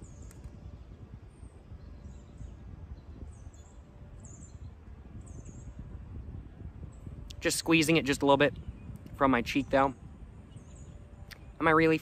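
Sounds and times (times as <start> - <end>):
small bird chirping: 0.0 - 5.9, 8.6 - 12.0
low outdoor rumble: 0.0 - 12.0.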